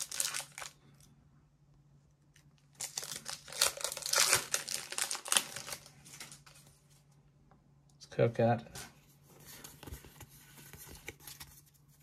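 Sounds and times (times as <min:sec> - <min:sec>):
foil wrapper crinkling: 0:00.0 - 0:00.8, 0:02.7 - 0:06.6.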